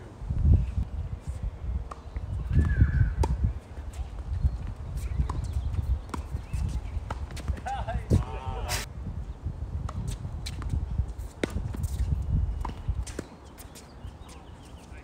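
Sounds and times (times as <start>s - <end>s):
racket hitting tennis ball: 3.2s - 4.0s, 11.4s - 12.0s.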